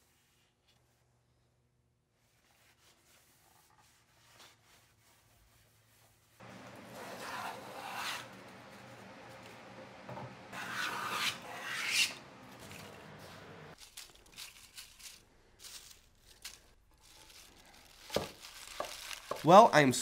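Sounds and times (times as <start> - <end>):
hand plane shaving wood: 6.4 - 8.4, 10.6 - 12.2.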